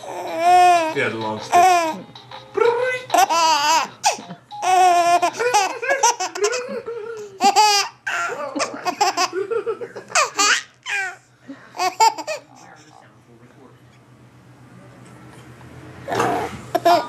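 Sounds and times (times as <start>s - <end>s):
baby laughing: 0.0s - 2.1s, 3.1s - 11.2s, 11.8s - 12.5s, 16.7s - 17.0s.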